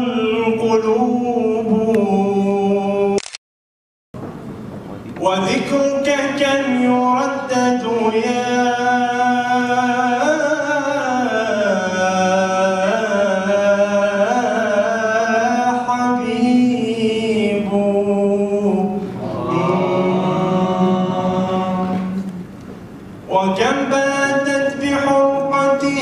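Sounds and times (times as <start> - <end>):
man singing unaccompanied: 0.0 - 3.2, 5.2 - 22.4, 23.3 - 26.0.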